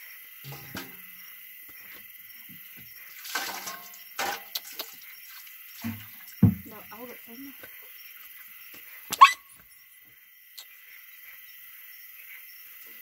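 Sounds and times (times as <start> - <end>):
water sloshing in a metal basin: 0.4 - 1.2, 2.5 - 7.4.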